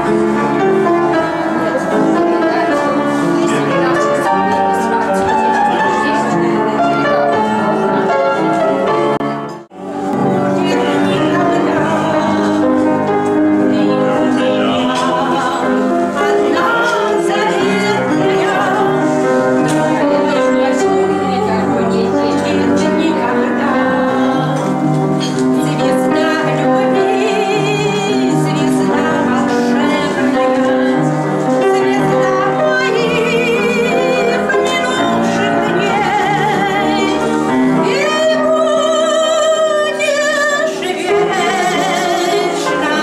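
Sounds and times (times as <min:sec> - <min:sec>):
instrumental accompaniment: 0:00.0 - 0:43.0
woman singing operatically: 0:10.6 - 0:13.0, 0:13.6 - 0:19.1, 0:25.6 - 0:37.2, 0:37.8 - 0:43.0.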